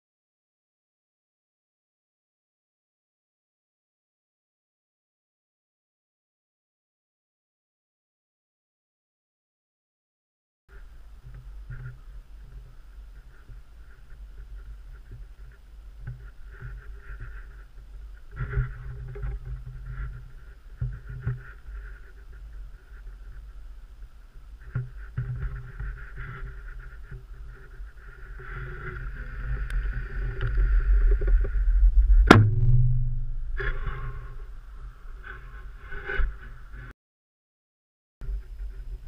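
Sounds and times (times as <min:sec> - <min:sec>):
low wind rumble: 0:10.7 - 0:36.9.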